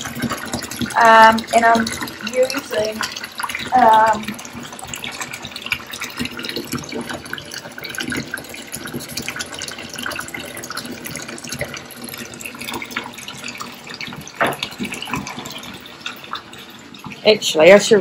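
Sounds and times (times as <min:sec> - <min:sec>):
bath tap running: 0:00.0 - 0:18.0
water splashing into bathtub: 0:00.0 - 0:18.0.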